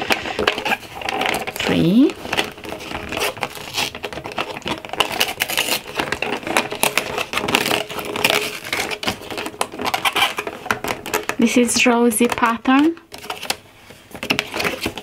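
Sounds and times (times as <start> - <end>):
cardboard tearing: 0.0 - 11.4, 14.2 - 15.0
fingernails scraping cardboard: 2.2 - 10.6.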